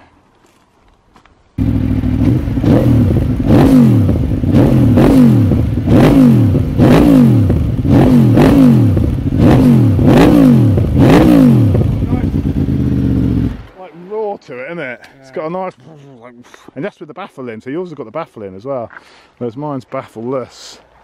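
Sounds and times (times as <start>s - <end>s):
motorcycle engine revving: 1.6s - 13.7s.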